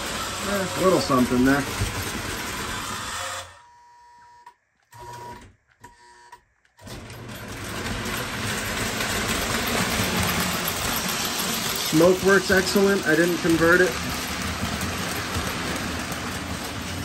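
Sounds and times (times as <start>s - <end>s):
toy train motor whirring: 0.0s - 3.6s, 7.2s - 17.0s.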